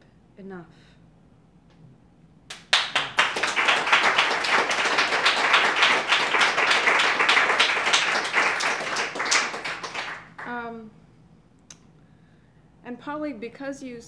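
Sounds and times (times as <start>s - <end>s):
audience applauding: 2.5s - 10.6s.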